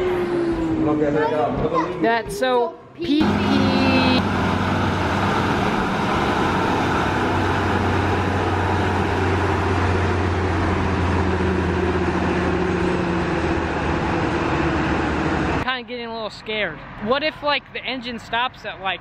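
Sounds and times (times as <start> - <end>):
diesel locomotive engine running: 3.2 - 16.6.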